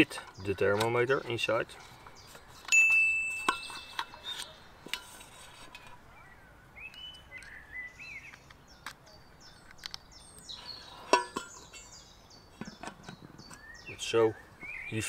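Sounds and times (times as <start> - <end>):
bird chirping: 0.0 - 15.0
metal lid clinking: 2.7 - 5.9, 11.1 - 11.9.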